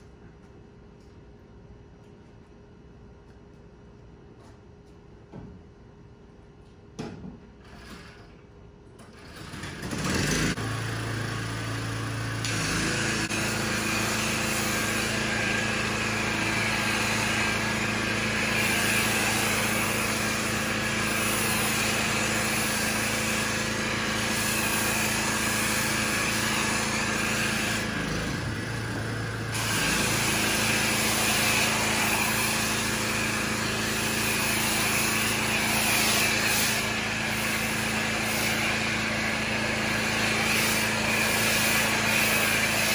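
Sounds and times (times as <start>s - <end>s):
pressure washer motor humming: 9.5s - 42.9s
foam spray hissing: 12.6s - 28.3s, 29.4s - 42.9s.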